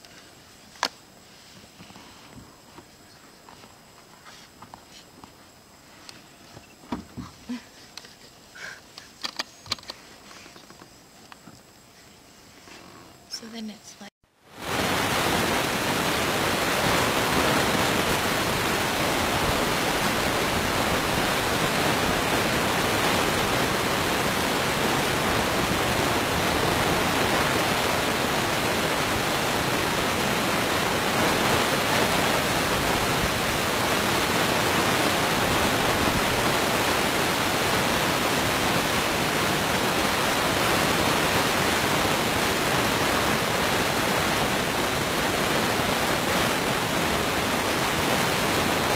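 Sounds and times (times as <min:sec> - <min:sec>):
loud steady static hiss: 0:00.0 - 0:48.9.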